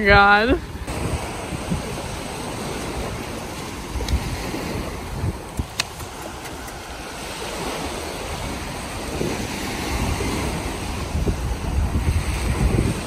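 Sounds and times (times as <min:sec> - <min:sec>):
small waves washing on sand: 0:00.0 - 0:13.0
wind buffeting microphone: 0:00.0 - 0:13.0
sharp clicks: 0:05.6 - 0:06.9.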